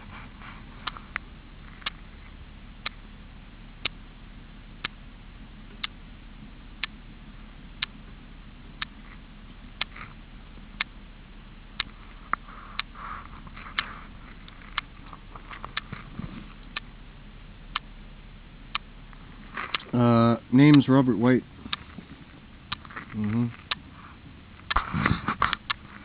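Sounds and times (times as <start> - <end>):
low steady background: 0.0 - 26.0
sharp ticking: 3.8 - 4.1, 7.7 - 11.0, 11.6 - 17.0, 17.6 - 26.0.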